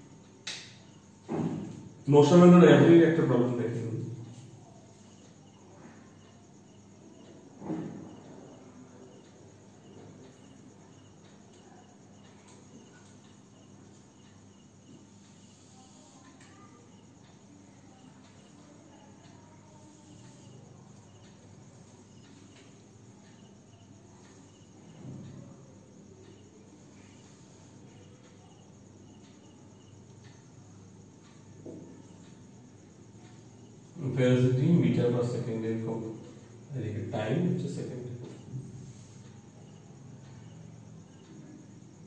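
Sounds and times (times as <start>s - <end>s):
cricket chirping: 0.0s - 42.0s
low thump: 1.3s - 1.8s.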